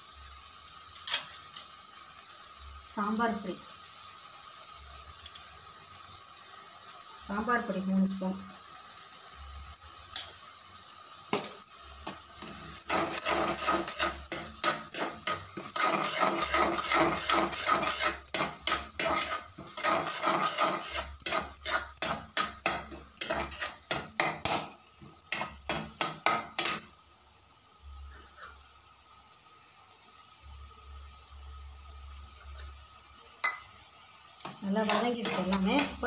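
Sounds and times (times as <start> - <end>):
steel spatula scraping a pan: 12.0 - 26.9, 34.5 - 36.0.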